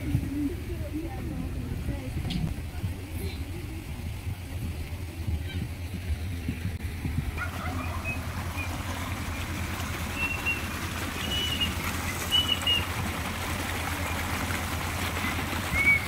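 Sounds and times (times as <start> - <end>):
water trickling: 0.0 - 16.0
bird chirps: 10.2 - 12.9.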